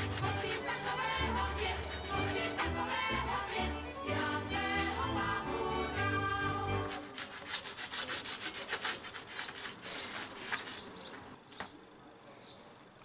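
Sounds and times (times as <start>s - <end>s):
background music: 0.0s - 7.2s
garlic rasping on toast: 6.9s - 10.9s.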